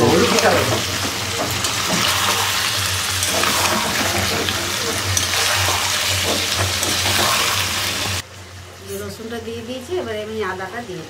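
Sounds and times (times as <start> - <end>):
metal spatula scraping pan: 0.0 - 8.2
chicken sizzling in pan: 0.0 - 11.0.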